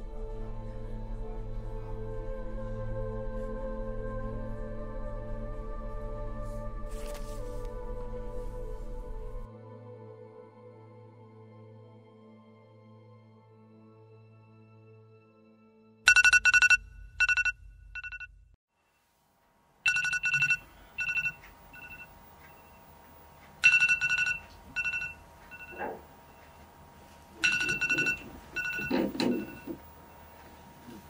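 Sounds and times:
electronic alarm ringtone trilling: 16.1 - 18.3, 19.9 - 22.8, 23.6 - 26.5, 27.4 - 29.8.

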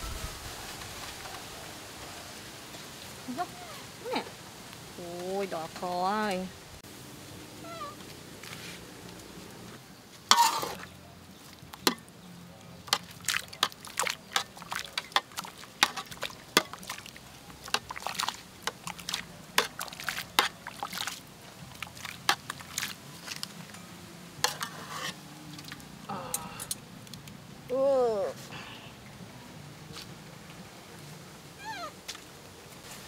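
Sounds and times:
water sloshing in a wok: 12.8 - 23.8, 24.4 - 26.0.

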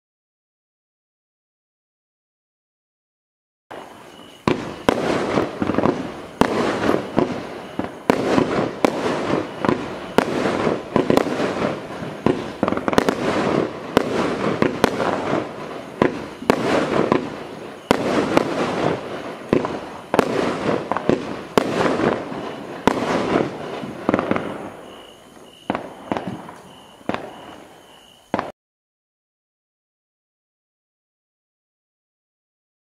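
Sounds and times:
fireworks bangs: 3.7 - 28.5
fireworks crackle and hiss: 3.7 - 28.6.

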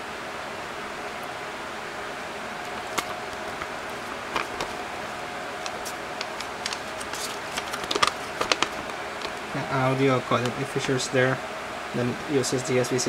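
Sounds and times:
background hum: 0.0 - 13.0
packaging clicks and taps: 2.7 - 3.7, 4.3 - 4.8, 5.6 - 9.4.

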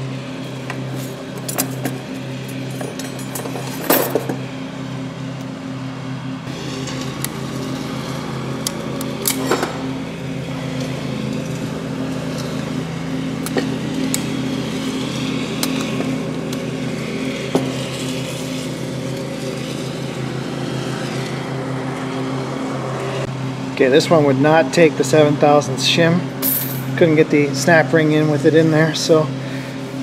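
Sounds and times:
metal parts clinking: 0.5 - 4.4.

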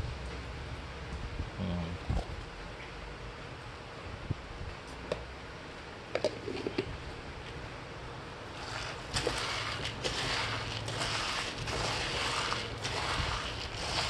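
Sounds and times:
spoon stirring grain in bowl: 8.5 - 14.0.

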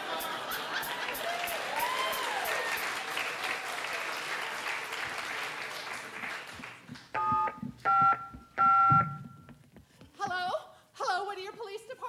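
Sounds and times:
applause: 0.8 - 7.1
telephone keypad dialing tones: 7.2 - 9.3.

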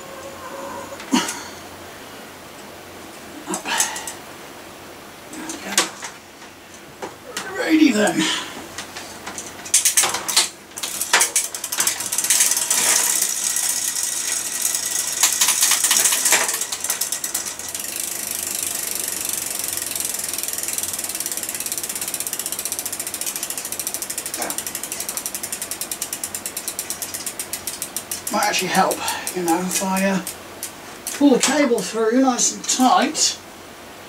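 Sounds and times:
bicycle chain and drivetrain noise: 2.6 - 4.3, 5.2 - 33.4
bicycle freewheel clicking: 9.2 - 31.9.

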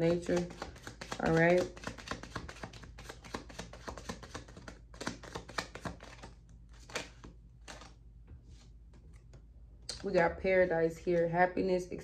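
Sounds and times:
cards being shuffled: 0.0 - 9.4.

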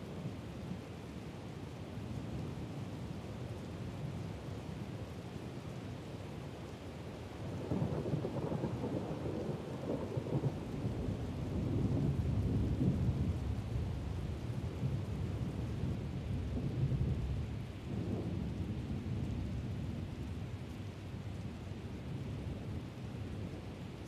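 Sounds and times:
steady rain: 0.0 - 24.0.

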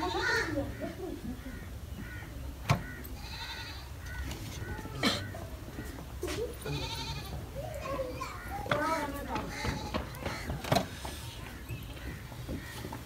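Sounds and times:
goats bleating: 0.0 - 0.6, 3.1 - 4.1, 4.7 - 12.9.

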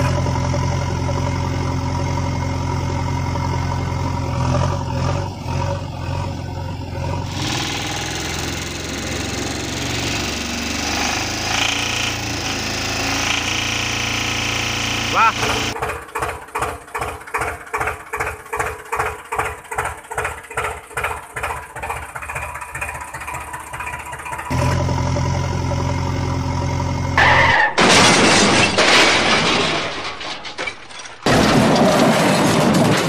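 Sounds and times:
steady engine drone: 0.0 - 27.3
tractor engine chugging: 0.0 - 27.3.

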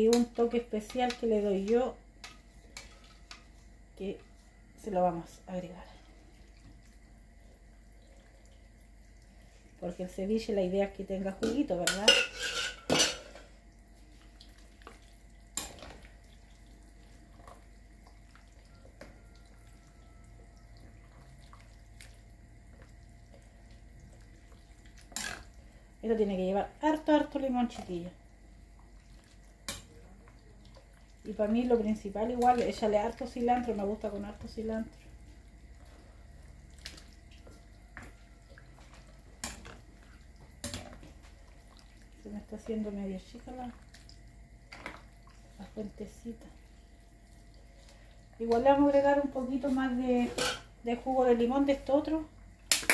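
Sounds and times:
utensils stirring wet food: 0.0 - 52.9
wet sloshing: 28.6 - 50.0.

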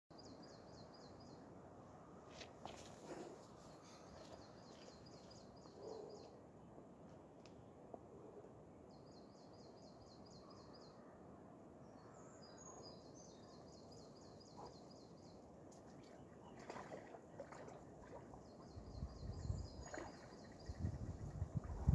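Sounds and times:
small songbird singing: 18.0 - 21.9.

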